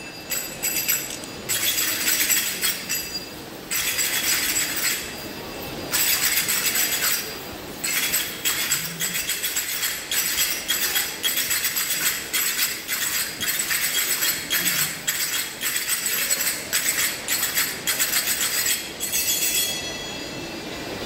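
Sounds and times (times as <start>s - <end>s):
finger cymbals clinking: 0.0s - 5.3s.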